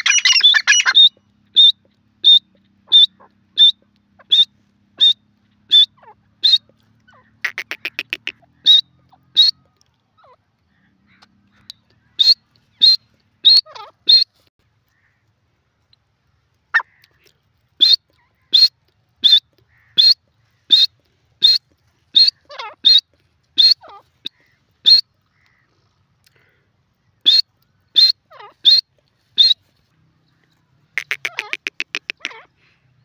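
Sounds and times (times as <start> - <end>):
bird calling sharp high notes: 0.0 - 10.4, 30.9 - 32.5
bird rattling call: 5.7 - 14.3, 30.9 - 32.5.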